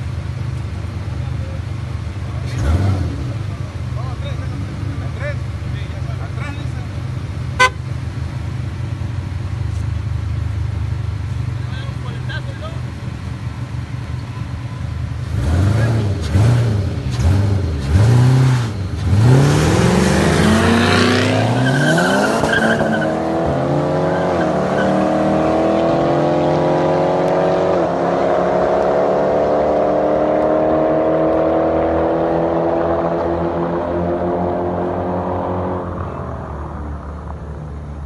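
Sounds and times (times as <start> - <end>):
car engines revving and accelerating: 0.0 - 38.0.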